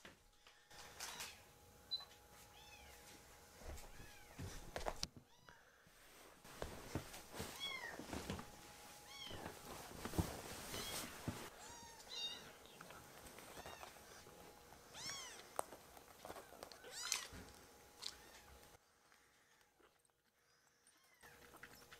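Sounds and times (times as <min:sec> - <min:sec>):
fabric rustling: 0:06.0 - 0:11.5
kittens meowing: 0:14.9 - 0:15.5, 0:16.8 - 0:17.4.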